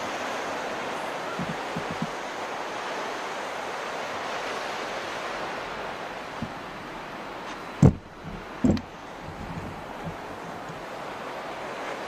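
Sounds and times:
surf washing onto beach: 0.0s - 12.0s
loud thumps: 7.8s - 8.9s.

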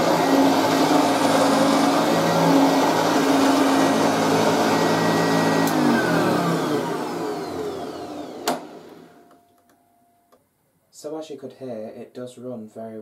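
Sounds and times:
vacuum cleaner motor running down: 0.0s - 9.2s.

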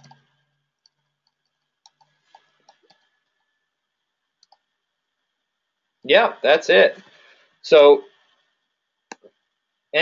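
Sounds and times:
faint computer clicks: 0.0s - 3.5s, 4.4s - 4.7s
faint steady hum: 0.0s - 10.0s.

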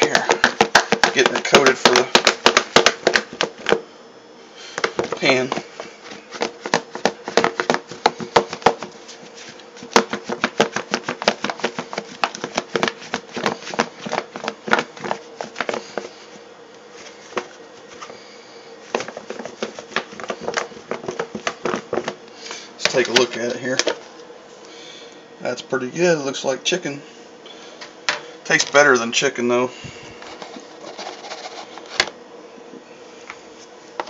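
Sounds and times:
meat rattling in plastic container: 0.0s - 3.7s.

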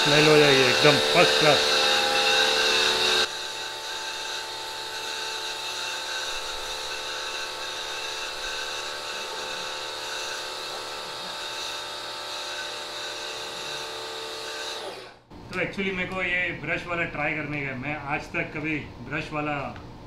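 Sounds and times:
pressure washer motor hum: 0.0s - 15.1s.

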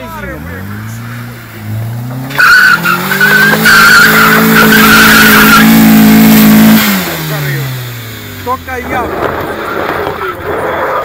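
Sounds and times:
tyres squealing: 0.0s - 7.8s
car engine revving: 0.0s - 11.0s.

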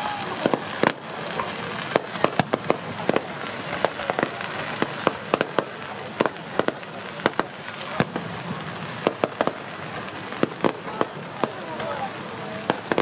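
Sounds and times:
continuous background haze: 0.0s - 13.0s
fireworks bangs and cracks: 0.0s - 13.0s.

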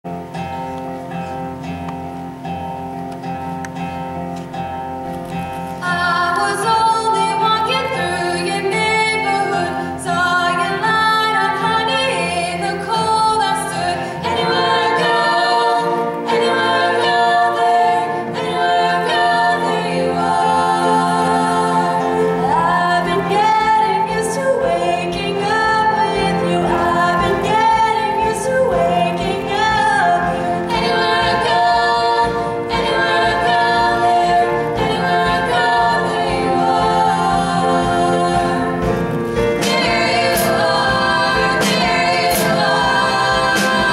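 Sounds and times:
acoustic guitar: 0.0s - 43.9s
female vocal trio singing: 5.8s - 43.9s
drum beat: 38.3s - 43.9s.

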